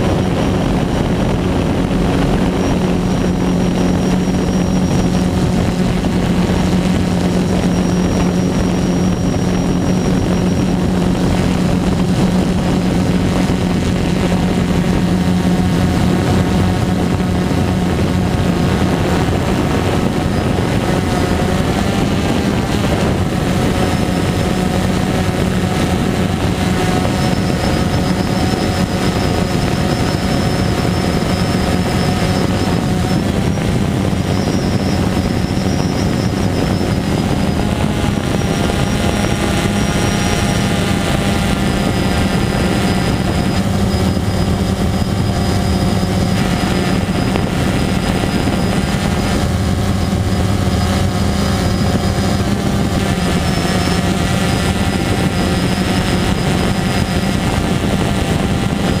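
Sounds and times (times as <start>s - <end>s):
drone motors buzzing: 0.0s - 59.0s.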